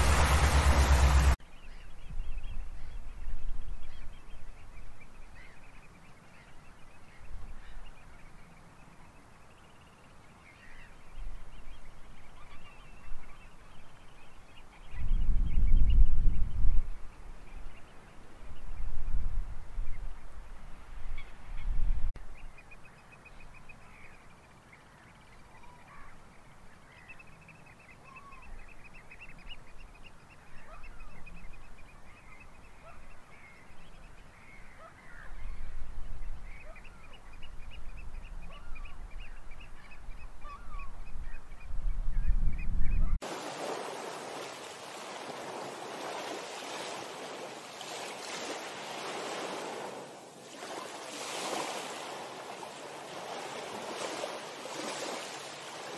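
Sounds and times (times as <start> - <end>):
small waves lapping: 0.0 - 1.4, 43.2 - 55.9
wind gusting on microphone: 0.0 - 1.4, 14.9 - 17.6, 18.4 - 22.2, 37.4 - 55.9
birds calling: 0.0 - 3.1, 22.3 - 55.9.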